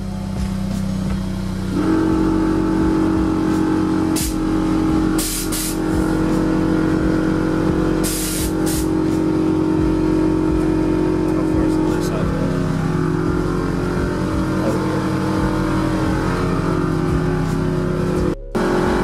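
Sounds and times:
air compressor droning: 0.0s - 19.0s
short hisses of air: 5.2s - 5.8s, 8.0s - 8.9s.

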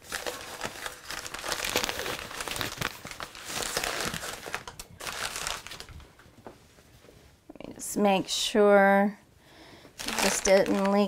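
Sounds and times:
bag and paper rustling: 0.0s - 6.1s, 10.0s - 11.0s.

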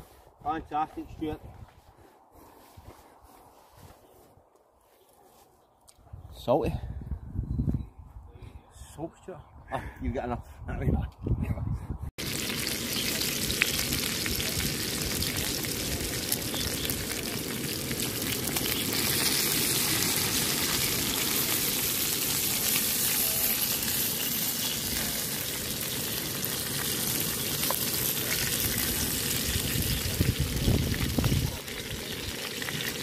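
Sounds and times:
meat sizzling: 12.2s - 33.0s.

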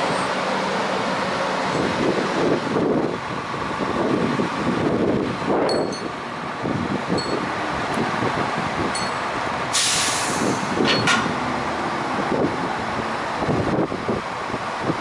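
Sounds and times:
loud hiss of air: 9.7s - 10.9s.

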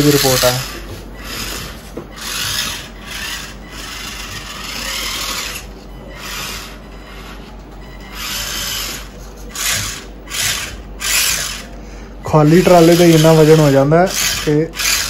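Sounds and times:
small electric motor whirring: 0.0s - 7.4s, 8.2s - 11.8s, 12.4s - 15.0s.

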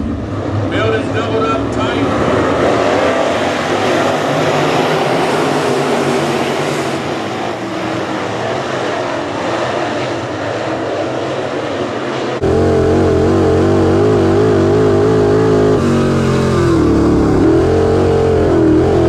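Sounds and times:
race car engines at full throttle: 0.0s - 19.0s.

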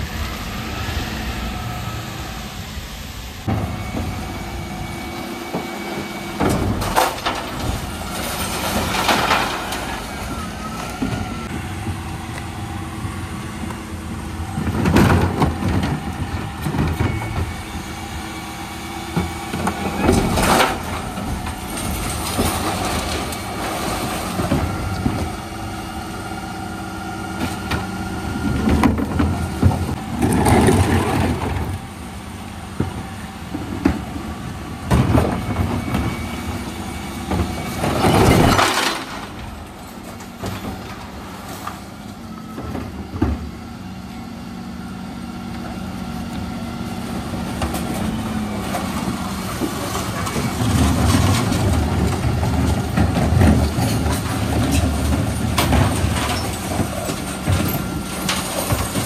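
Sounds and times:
truck engine running: 0.0s - 59.0s
recycling crashing into hopper: 5.5s - 12.0s, 19.1s - 25.6s, 34.8s - 43.5s.

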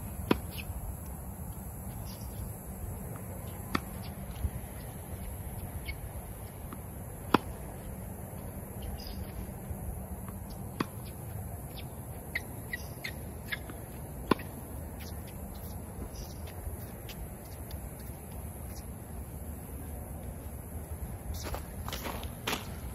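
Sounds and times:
faint bird chirps: 11.0s - 13.7s.

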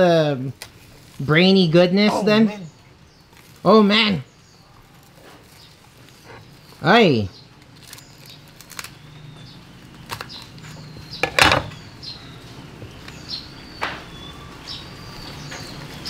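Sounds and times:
cleaver chopping knocks and cracks: 11.1s - 11.8s.

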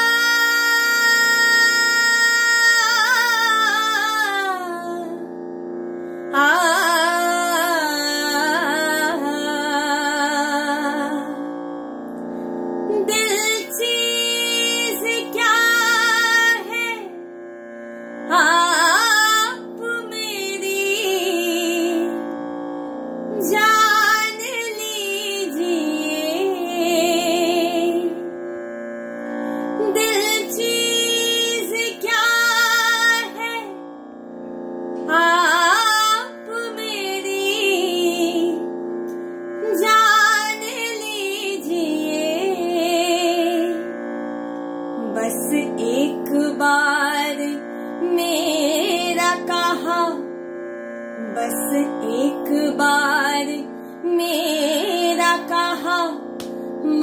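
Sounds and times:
woman singing wordless phrases: 0.0s - 5.2s, 13.0s - 17.1s, 18.3s - 22.2s, 23.4s - 28.2s, 29.9s - 33.7s, 35.1s - 38.6s, 39.7s - 43.8s, 45.0s - 50.2s, 51.2s - 56.2s.

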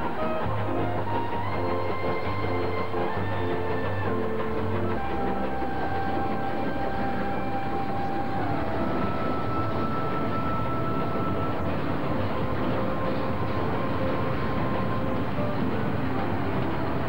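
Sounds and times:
steam train rumbling: 0.0s - 17.0s.

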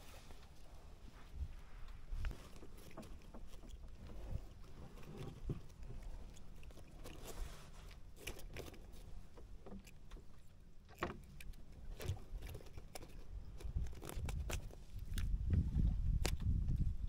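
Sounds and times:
low uneven rumble: 0.0s - 14.1s
fishing gear clicks and knocks: 2.2s - 15.6s.

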